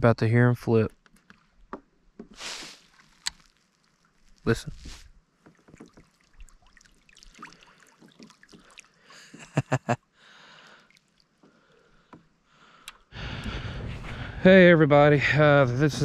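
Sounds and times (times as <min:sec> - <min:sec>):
fish splashing in water: 0:02.4 - 0:04.4, 0:05.5 - 0:09.2, 0:10.7 - 0:11.4
fish slapping: 0:05.5 - 0:09.0.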